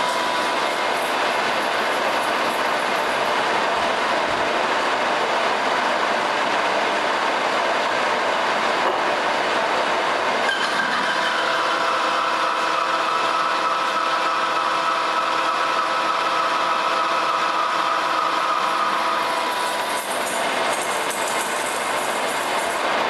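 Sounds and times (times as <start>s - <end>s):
lathe cutting steel: 0.0s - 5.2s, 10.3s - 23.0s.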